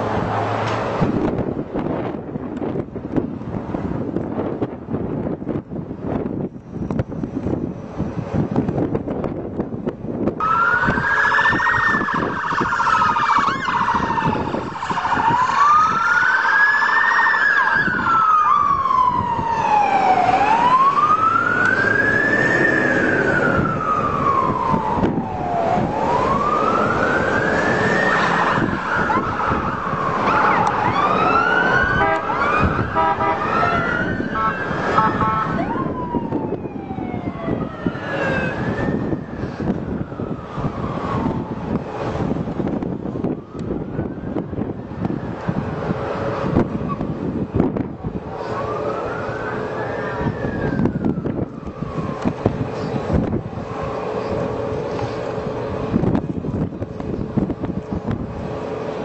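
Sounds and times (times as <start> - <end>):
street traffic: 0.0 - 59.0
emergency siren wailing: 10.4 - 59.0
short repeated siren tones: 28.0 - 38.7.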